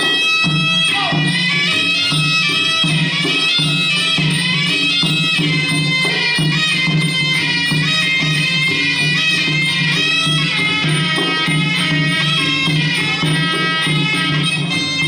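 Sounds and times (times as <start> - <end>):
steady drumbeat: 0.0 - 15.0
reedy oboe melody: 5.3 - 15.0.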